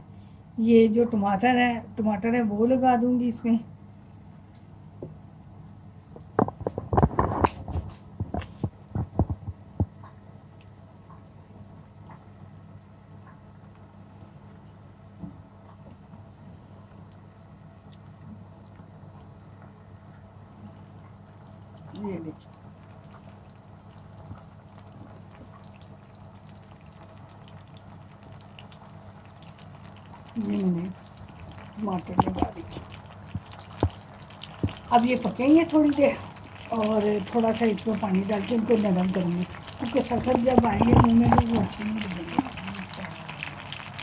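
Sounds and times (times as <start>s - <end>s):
steady low hum: 0.0s - 44.0s
soft thumps and knocks: 6.2s - 10.1s
tomato slices sizzling in oil: 21.3s - 44.0s.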